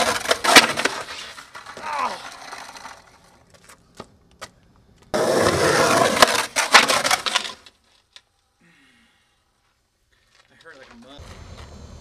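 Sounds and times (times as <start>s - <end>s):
skateboard cracking and slamming: 0.0s - 3.4s, 5.1s - 8.0s
skateboard wheels rolling on concrete: 0.0s - 8.4s, 9.6s - 12.0s.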